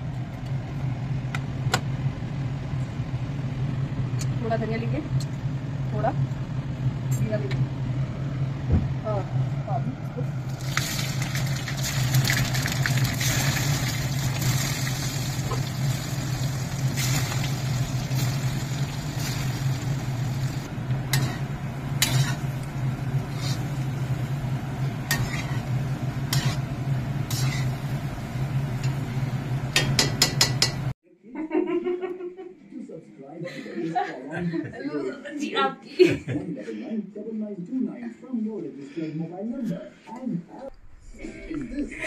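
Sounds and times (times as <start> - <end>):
low hum: 0.0 - 30.0, 40.5 - 42.0
food sizzling in hot oil: 10.5 - 29.2
spatula scraping metal pan: 25.1 - 25.6, 26.3 - 26.6, 27.3 - 27.7.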